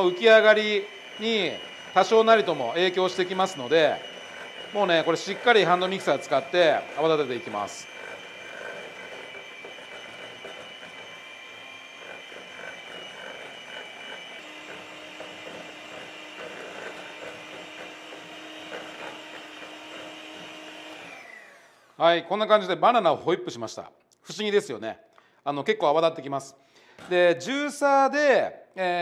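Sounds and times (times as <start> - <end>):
beaters whipping in metal bowl: 0.0 - 21.0
electric hand mixer whining: 0.0 - 22.1.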